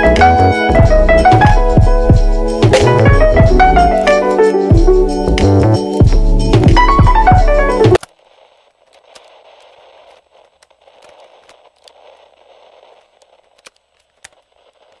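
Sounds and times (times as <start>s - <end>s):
crackling static hiss: 6.5s - 15.0s
clicks: 8.0s - 8.2s.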